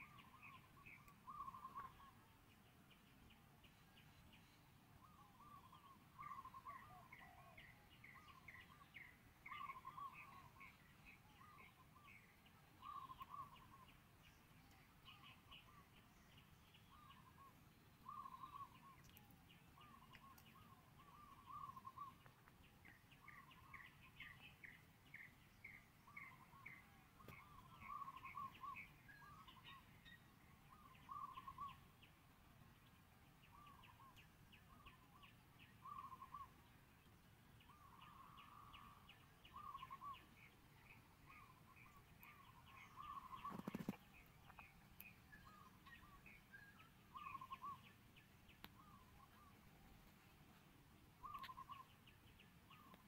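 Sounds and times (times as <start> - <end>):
birds chirping: 0.0 - 53.0.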